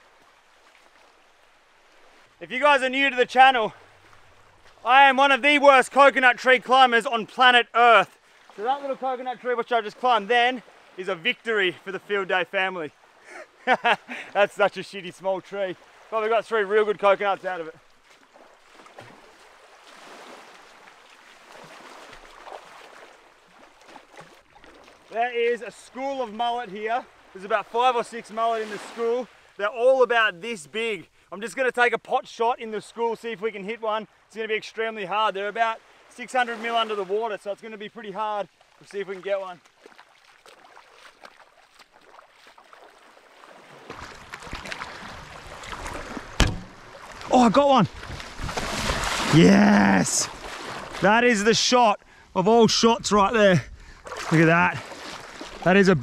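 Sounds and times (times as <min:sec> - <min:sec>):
feet wading through shallow water: 0:00.0 - 0:06.6, 0:08.0 - 0:29.6, 0:35.8 - 0:51.2, 0:53.6 - 0:56.0
small waves washing on shore: 0:00.0 - 0:31.7, 0:32.6 - 0:51.6, 0:53.0 - 0:56.0
footsteps in sand: 0:03.9 - 0:04.9, 0:17.9 - 0:25.2, 0:38.6 - 0:49.4, 0:50.2 - 0:51.1, 0:54.0 - 0:56.0.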